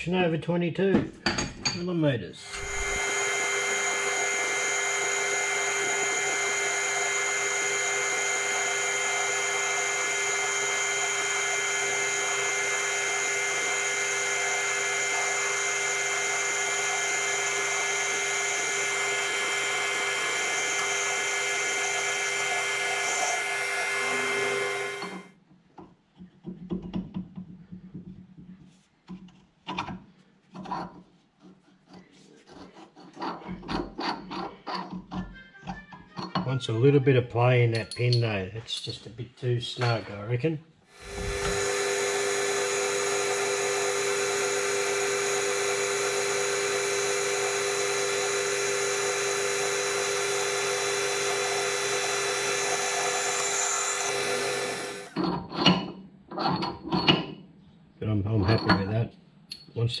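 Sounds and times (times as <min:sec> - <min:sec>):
metal lathe machining with high whine: 0:02.5 - 0:25.3, 0:40.9 - 0:55.4.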